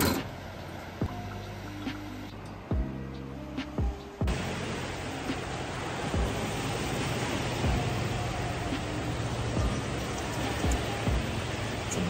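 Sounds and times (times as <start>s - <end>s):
background music with deep beat: 0.0s - 12.0s
constant rushing noise: 3.8s - 12.0s.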